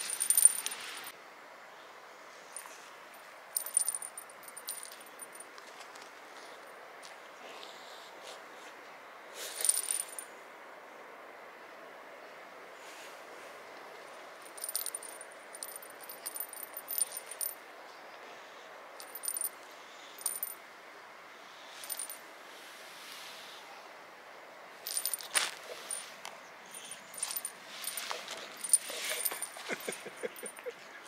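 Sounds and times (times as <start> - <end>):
metallic jingling and rattling: 0.0 - 1.1, 3.6 - 5.5, 9.6 - 10.3, 14.3 - 17.6, 19.0 - 19.6, 20.2 - 20.6, 21.8 - 22.2, 24.8 - 30.7
steady background hiss: 0.0 - 31.0.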